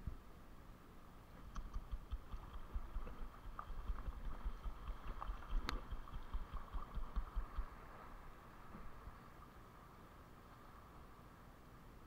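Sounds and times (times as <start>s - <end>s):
sharp click: 1.4s - 2.8s, 4.6s - 7.7s
wind buffeting on microphone: 1.5s - 7.8s
seawater lapping over rocks: 1.7s - 8.2s.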